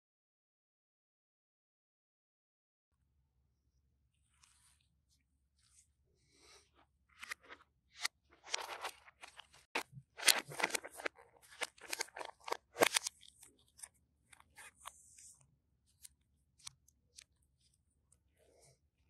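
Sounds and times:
gloved hands crinkling and rustling: 0:08.3 - 0:17.9.

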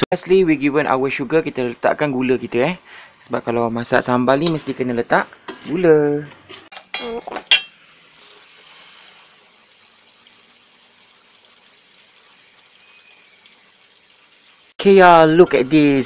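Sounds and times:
paste sizzling in oil: 0:06.7 - 0:14.8
metal spoon clinking against wok: 0:06.8 - 0:07.8.

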